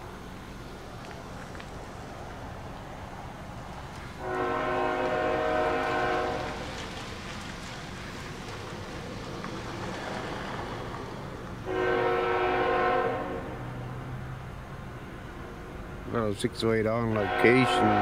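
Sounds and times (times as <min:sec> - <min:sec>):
train rumbling: 0:00.0 - 0:18.0
locomotive air horn blasts: 0:04.2 - 0:06.6, 0:11.6 - 0:13.7, 0:17.1 - 0:18.0.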